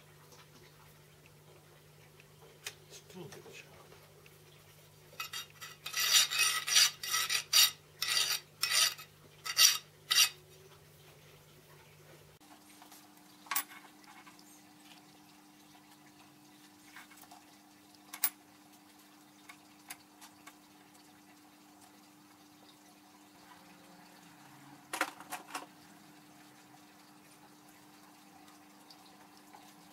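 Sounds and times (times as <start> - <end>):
rough metal scraping: 5.2 - 10.4.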